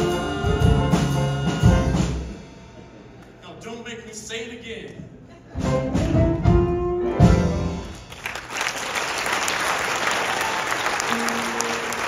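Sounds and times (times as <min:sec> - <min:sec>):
audience applause: 0:07.9 - 0:12.0.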